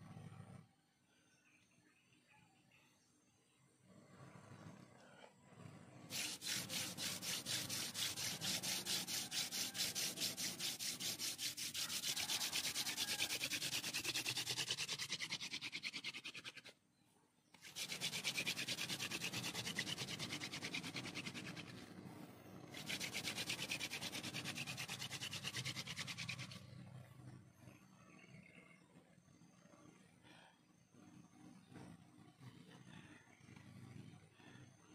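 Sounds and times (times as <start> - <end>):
wooden spindle rasping in hearth: 5.5 - 16.8, 17.5 - 26.8.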